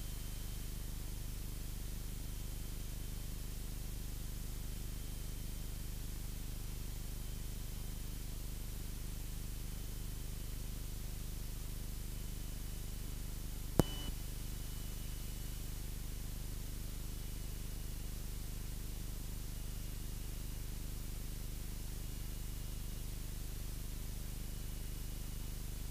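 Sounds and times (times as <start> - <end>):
sharp click: 13.8 - 14.1
short beep: 13.8 - 14.1
faint high whine: 13.8 - 15.0.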